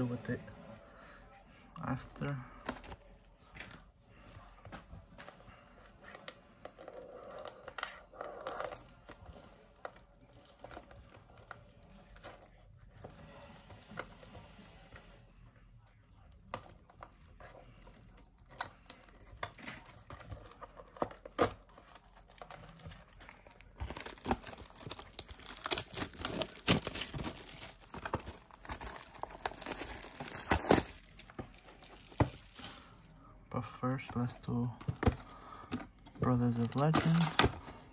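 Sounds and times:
plastic wrapping tearing and crinkling: 0:06.9 - 0:14.3, 0:16.2 - 0:33.1, 0:36.2 - 0:37.9.

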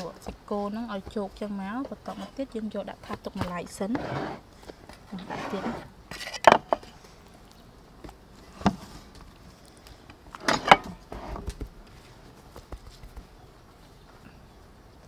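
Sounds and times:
soft pats and rustles of flour: 0:11.4 - 0:14.0.

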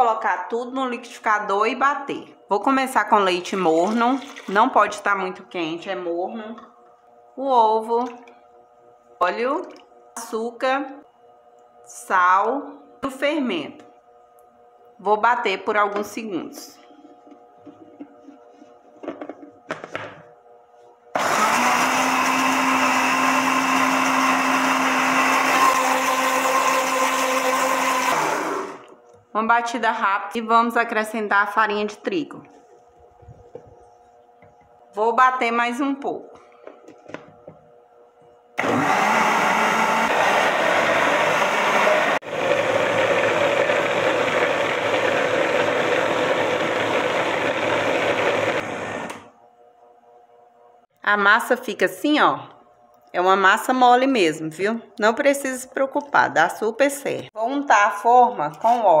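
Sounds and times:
electric blender running: 0:03.3 - 0:05.0, 0:21.1 - 0:29.1, 0:38.6 - 0:49.4.

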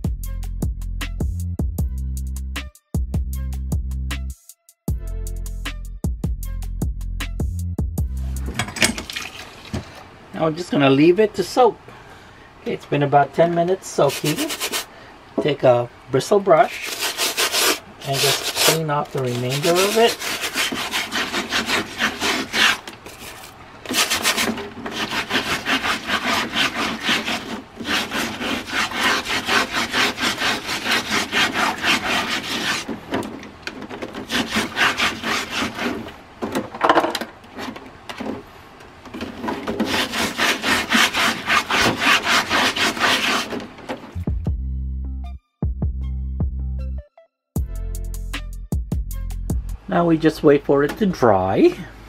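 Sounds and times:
bristle brush scrubbing filter in water: 0:08.7 - 0:10.1, 0:13.5 - 0:14.9, 0:16.2 - 0:33.3, 0:34.0 - 0:36.1, 0:39.2 - 0:43.7.

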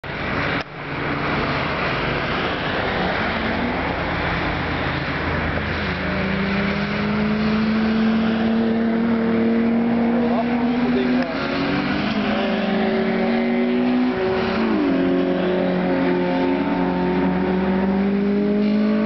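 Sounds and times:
car engine approaching: 0:00.0 - 0:19.0
cars rushing on wet track: 0:00.0 - 0:19.0.

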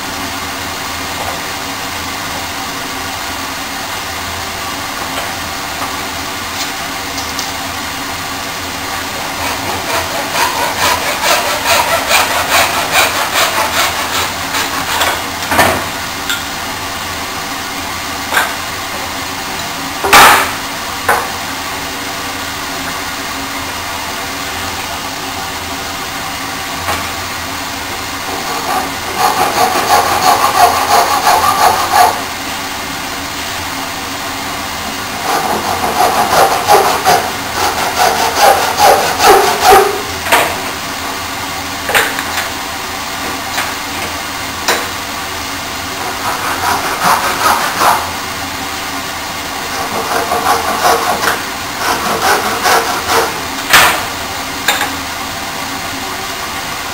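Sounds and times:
hand saw cutting wood: 0:09.1 - 0:15.3, 0:28.3 - 0:32.3, 0:35.2 - 0:40.1, 0:46.0 - 0:48.2, 0:49.7 - 0:54.0.

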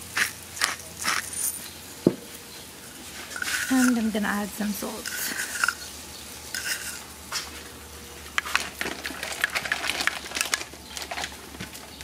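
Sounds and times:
metal spoon stirring in bowl: 0:03.3 - 0:04.2, 0:04.9 - 0:05.9, 0:06.5 - 0:07.0.

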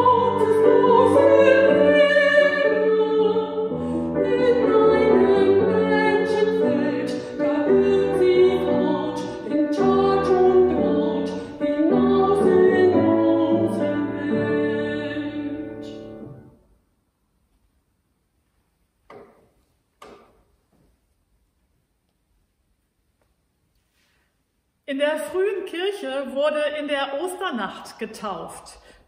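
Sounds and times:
woman singing: 0:00.0 - 0:16.2
grand piano accompaniment: 0:00.0 - 0:16.6.

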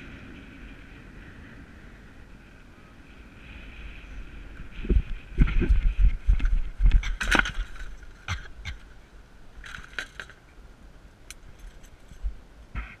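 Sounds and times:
wind buffeting microphone: 0:00.0 - 0:09.8.

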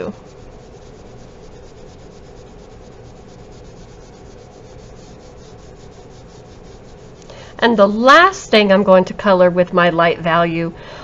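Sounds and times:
crayon rubbing on paper: 0:00.0 - 0:07.3.

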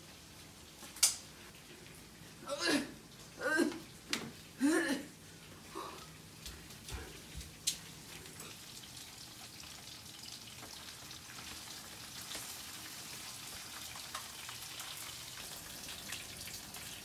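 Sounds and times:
food sizzling in a frying pan: 0:08.4 - 0:17.0.

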